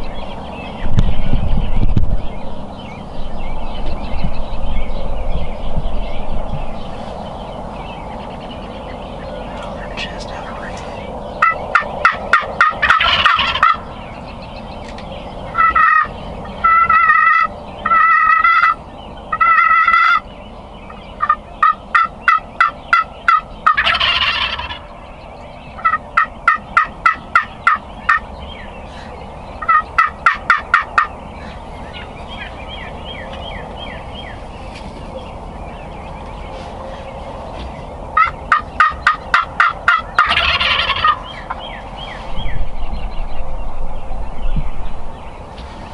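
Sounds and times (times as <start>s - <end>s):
turkeys gobbling: 8.6s - 14.2s, 15.5s - 42.2s
short held turkey calls: 15.6s - 20.2s, 38.2s - 41.6s.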